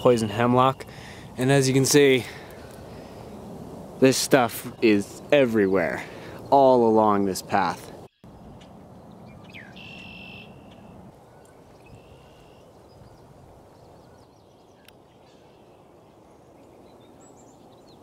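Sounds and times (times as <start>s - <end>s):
small birds calling: 0.0s - 3.4s, 4.0s - 18.0s.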